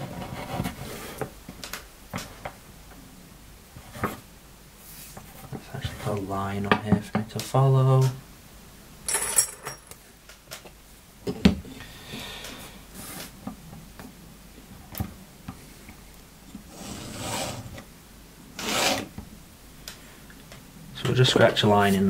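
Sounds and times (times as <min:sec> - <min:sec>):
marking tool scraping leather: 0:18.6 - 0:19.1.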